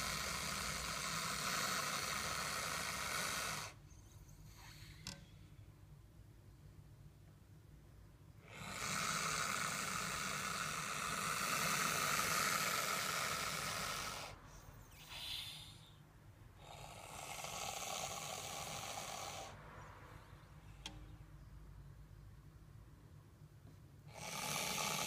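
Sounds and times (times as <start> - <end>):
snake hissing: 0.0 - 3.8, 8.4 - 16.0, 16.6 - 19.6, 24.1 - 25.0.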